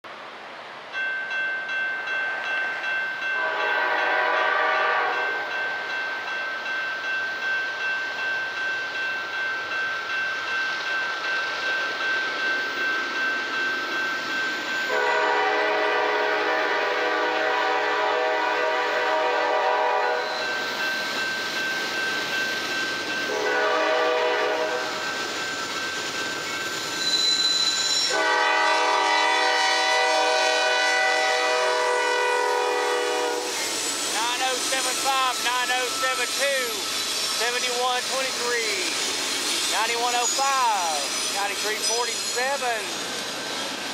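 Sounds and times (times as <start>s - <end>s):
locomotive air horn blasts: 3.4s - 5.5s, 14.9s - 20.5s, 23.3s - 24.9s, 28.0s - 33.6s.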